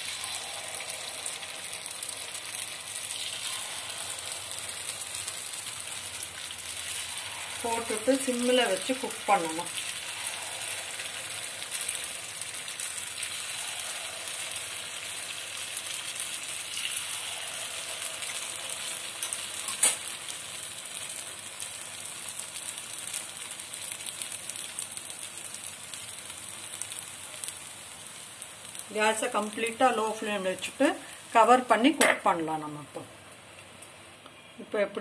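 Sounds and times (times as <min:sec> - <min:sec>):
batter sizzling in hot oil: 0:00.0 - 0:35.0.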